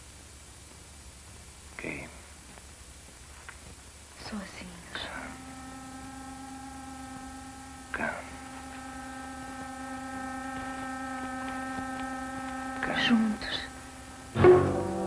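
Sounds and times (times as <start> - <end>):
breathy hiss: 1.4 - 14.4
steady droning tone: 4.2 - 15.0.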